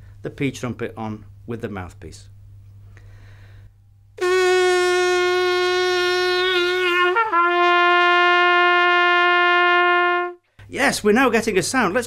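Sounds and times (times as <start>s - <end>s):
plastic trumpet long note: 4.2s - 10.4s.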